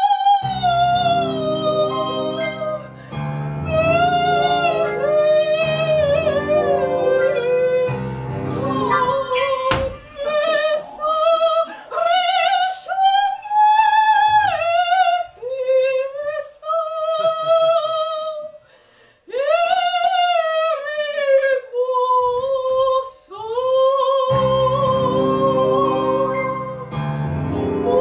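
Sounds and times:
woman singing operatically: 0.0s - 18.6s, 19.3s - 27.0s, 27.8s - 28.0s
piano chords: 0.4s - 12.6s, 24.3s - 28.0s.

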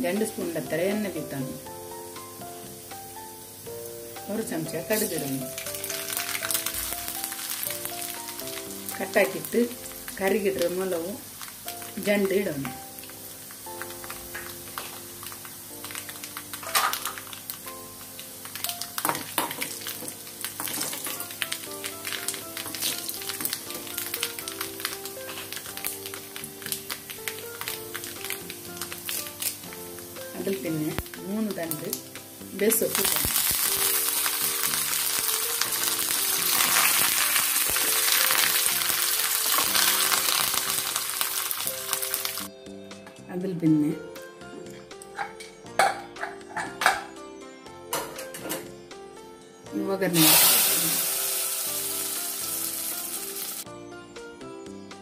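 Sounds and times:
spices sizzling in hot oil: 0.0s - 42.6s, 49.8s - 53.7s
background music: 0.0s - 55.0s
sharp crackles: 5.0s - 9.4s, 18.5s - 29.8s, 32.8s - 42.5s.

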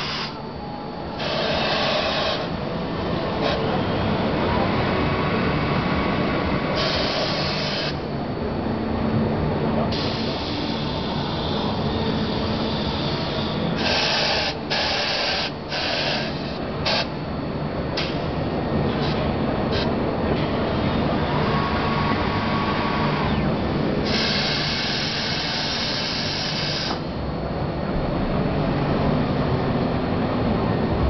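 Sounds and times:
motor drone: 0.0s - 17.1s, 18.6s - 27.2s
compressed air hiss: 24.0s - 27.0s.

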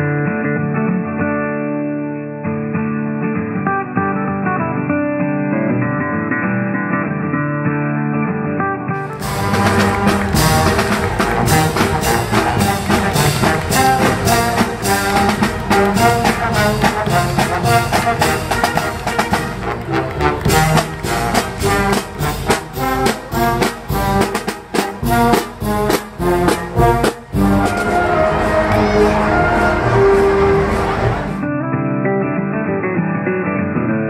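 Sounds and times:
marching brass band playing: 9.0s - 31.4s
drums and cymbals beat: 9.1s - 31.4s.

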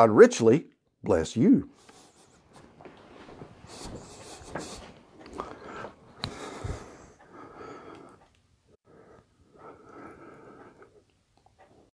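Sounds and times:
soft breathy hisses: 3.6s - 4.9s.

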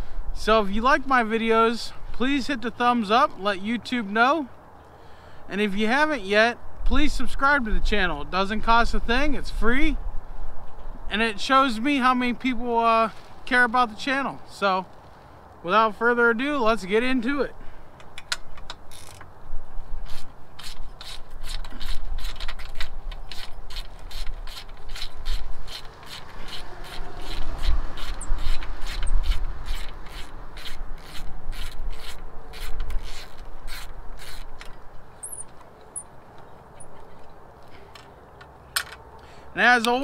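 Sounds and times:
ratchet wrench clicking: 18.0s - 19.3s.

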